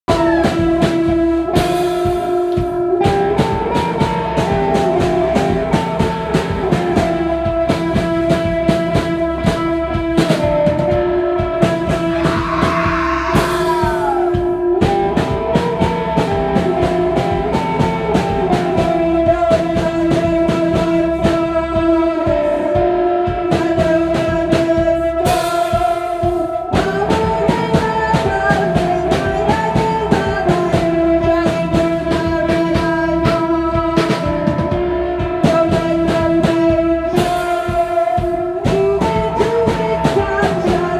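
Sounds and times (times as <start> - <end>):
drum beat: 11.6 - 21.7
cymbal crashes: 11.9 - 14.7.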